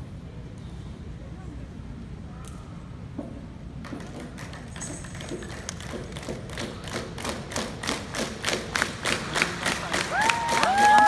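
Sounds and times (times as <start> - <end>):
group hand claps and slaps: 3.8 - 11.0.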